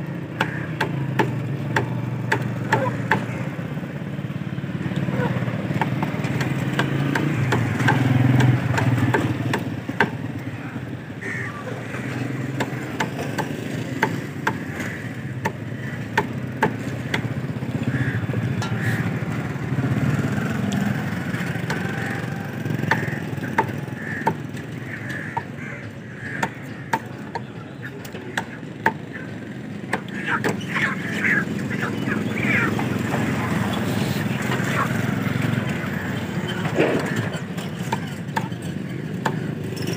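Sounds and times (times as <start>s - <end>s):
street traffic: 0.0s - 39.9s
cleaver chopping on wooden block: 5.7s - 10.2s, 22.8s - 24.5s.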